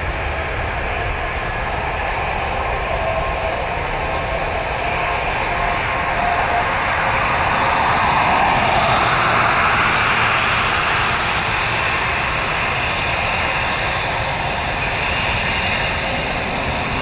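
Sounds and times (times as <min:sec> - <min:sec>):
jet airliner climbing: 0:05.8 - 0:14.0.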